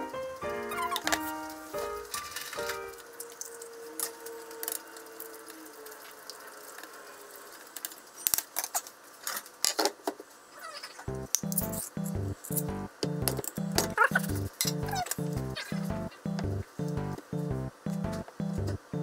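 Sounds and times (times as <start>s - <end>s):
background music: 0.0s - 3.2s, 11.1s - 19.0s.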